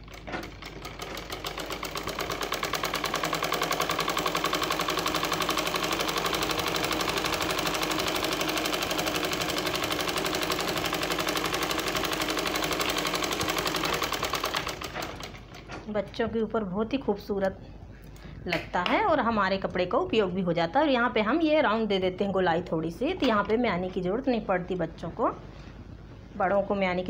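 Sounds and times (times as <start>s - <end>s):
sewing machine stitching: 0.0s - 15.7s.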